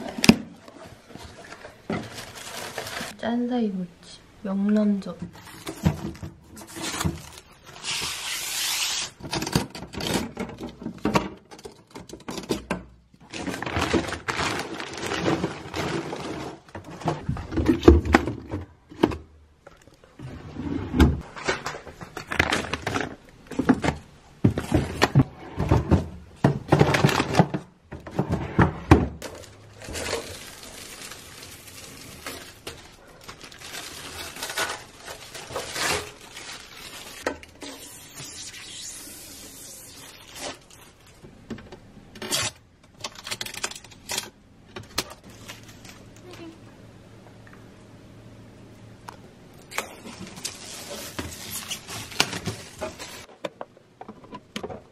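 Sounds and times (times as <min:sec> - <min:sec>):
items clattering in plastic drawers: 0:00.0 - 0:03.2, 0:05.2 - 0:08.1, 0:09.2 - 0:37.7, 0:49.7 - 0:54.9
plastic bags rustling: 0:00.0 - 0:03.2, 0:05.3 - 0:09.2, 0:13.2 - 0:18.4, 0:21.2 - 0:28.4, 0:29.2 - 0:41.5, 0:42.2 - 0:46.6, 0:49.6 - 0:53.4.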